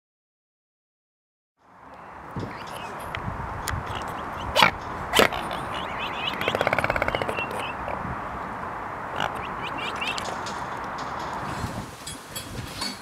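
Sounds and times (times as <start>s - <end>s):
steady outdoor hiss: 1.6s - 13.0s
fast rattling animal call: 2.0s - 8.0s, 9.1s - 10.7s
sharp bark-like animal calls: 2.5s - 3.1s, 3.8s - 8.0s, 9.1s - 10.3s
small chirps: 5.2s - 7.9s, 9.2s - 10.4s.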